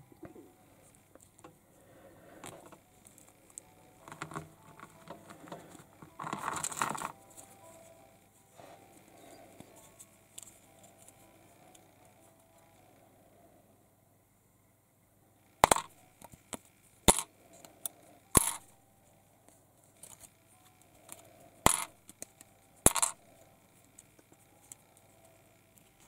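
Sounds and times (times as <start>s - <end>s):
plastic parts clicking: 2.4s - 7.2s, 15.6s - 18.6s
packaging rustling: 4.0s - 7.8s.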